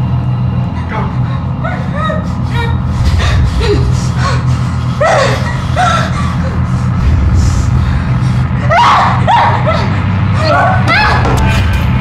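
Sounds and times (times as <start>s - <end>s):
steady low drone: 0.0s - 12.0s
person gasping and whimpering: 1.8s - 8.6s.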